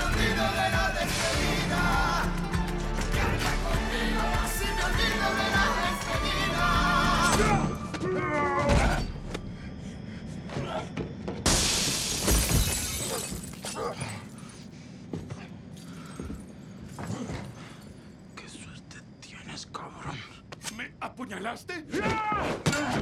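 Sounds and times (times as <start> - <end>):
song with singing: 0.0 - 8.0
glass shattering: 11.5 - 14.3.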